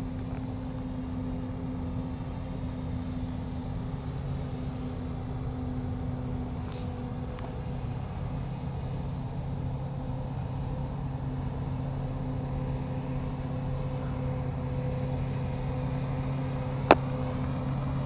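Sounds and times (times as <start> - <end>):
harvester humming drone: 0.0 - 18.0.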